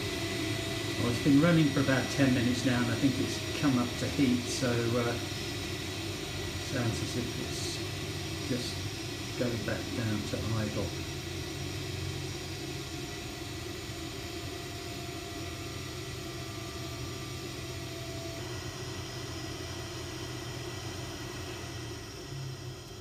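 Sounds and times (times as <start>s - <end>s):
gas boiler fan humming: 0.0s - 23.0s.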